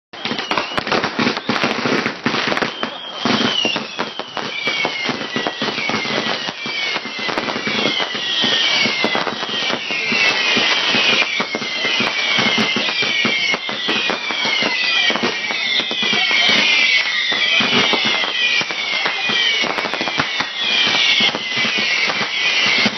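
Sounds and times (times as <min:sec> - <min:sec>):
falling firework whistles: 0:00.2 - 0:22.9
fireworks crackling and popping: 0:00.2 - 0:22.9.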